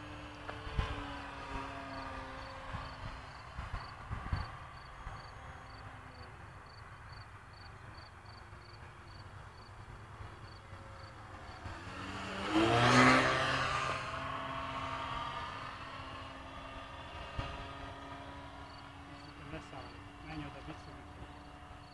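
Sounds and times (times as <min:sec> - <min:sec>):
model airplane motor: 0:00.0 - 0:06.6, 0:13.9 - 0:21.9.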